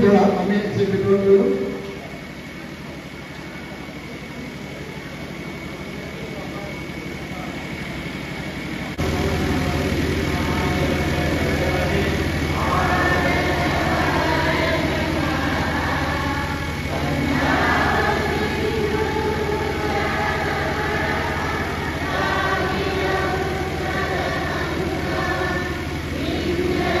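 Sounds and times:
steady low hum: 0.0s - 27.0s
group singing together: 9.0s - 27.0s.

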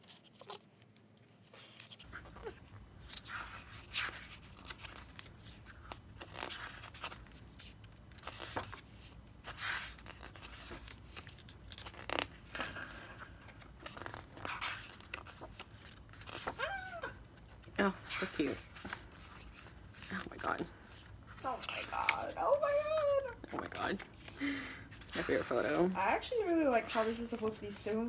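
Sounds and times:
paper pages turning: 0.0s - 28.0s.

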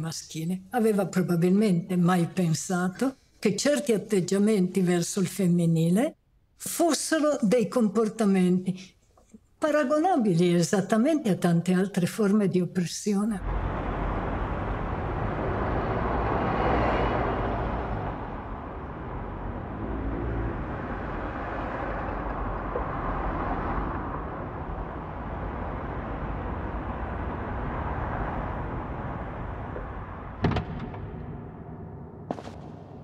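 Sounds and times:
car engine and road noise: 13.4s - 33.0s
sharp knock: 30.4s - 33.0s.

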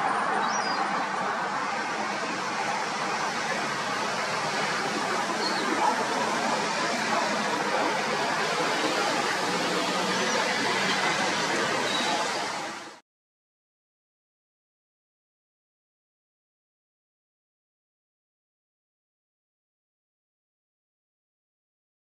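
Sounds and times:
steady outdoor rushing noise: 0.0s - 13.0s.

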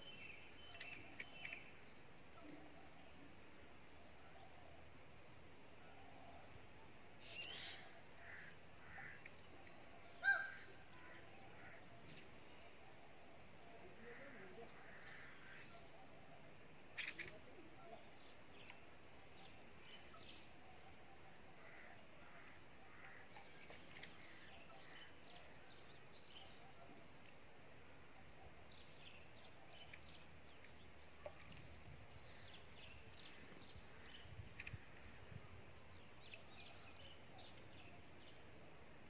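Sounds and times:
small birds chirping: 0.0s - 39.0s.

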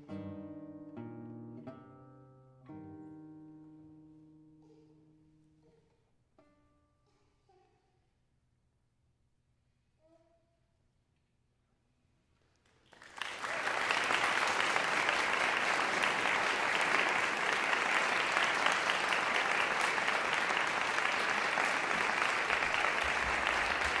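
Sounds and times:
audience applauding: 12.7s - 24.0s.

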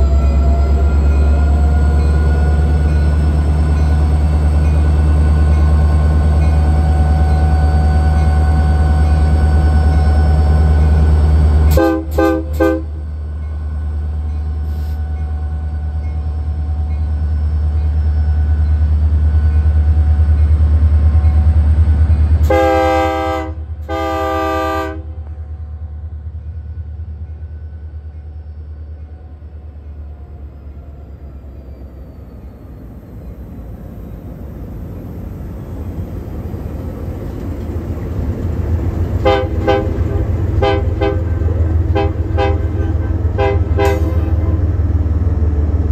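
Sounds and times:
diesel locomotive engine rumble: 0.0s - 45.9s
locomotive air horn toots: 11.7s - 13.0s, 22.4s - 25.3s, 39.2s - 44.7s.

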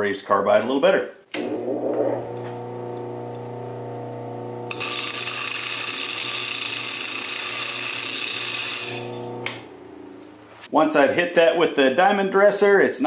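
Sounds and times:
buffer motor humming: 1.4s - 10.6s
high-pitched grinding screech: 4.7s - 9.4s.

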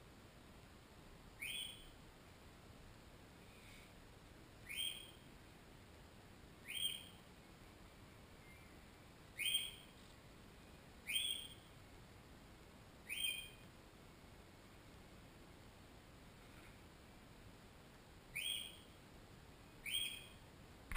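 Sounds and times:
bird whistled chirps: 1.4s - 1.9s, 4.6s - 5.2s, 6.6s - 7.2s, 9.4s - 9.8s, 11.0s - 11.6s, 13.1s - 13.6s, 18.3s - 18.9s, 19.8s - 20.4s.

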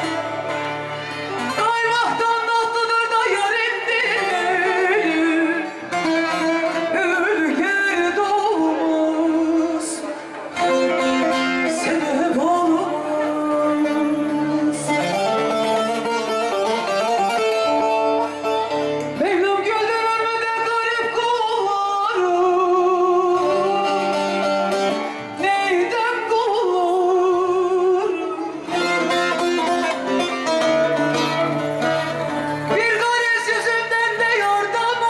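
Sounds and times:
plucked long-necked lute: 0.0s - 35.0s
woman singing with vibrato: 1.4s - 10.2s, 11.6s - 16.0s, 19.2s - 24.4s, 25.1s - 28.7s, 32.1s - 35.0s.

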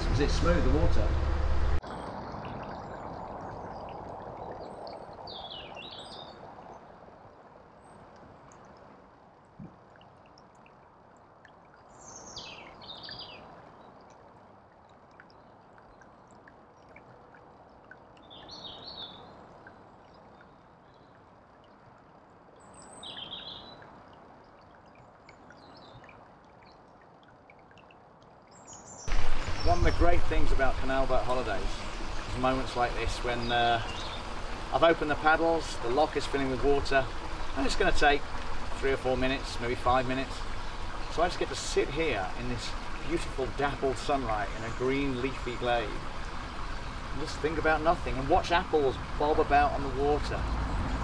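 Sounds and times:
songbird chirping: 4.4s - 6.8s, 11.8s - 14.1s, 17.6s - 21.3s, 22.6s - 23.9s, 27.7s - 51.0s.

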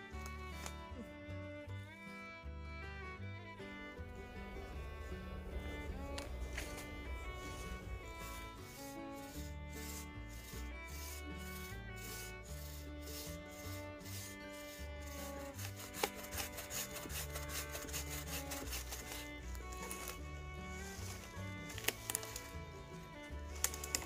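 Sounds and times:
bass line: 0.0s - 24.0s
held synth notes: 3.4s - 12.2s.

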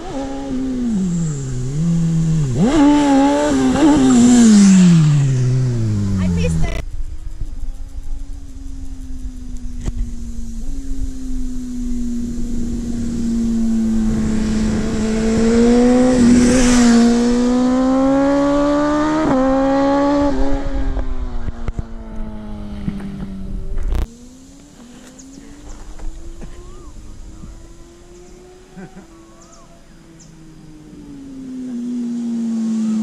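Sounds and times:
motorcycle engine passing by: 0.0s - 33.0s.

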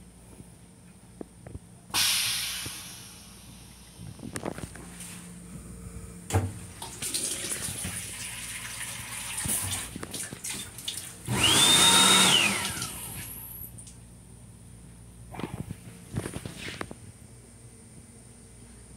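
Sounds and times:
faucet running into sink: 6.8s - 11.1s.

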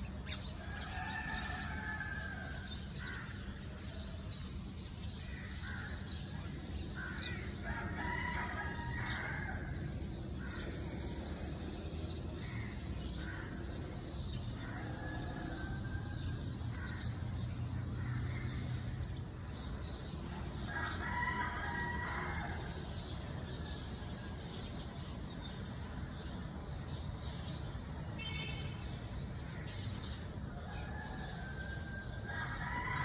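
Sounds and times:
rooster crowing: 7.6s - 9.8s.

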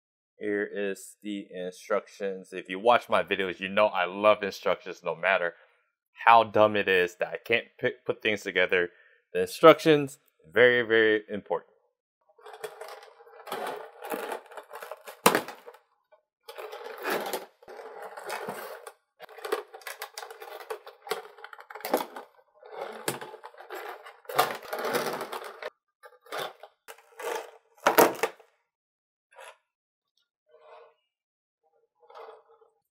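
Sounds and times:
plastic packaging crinkling: 13.5s - 15.7s.

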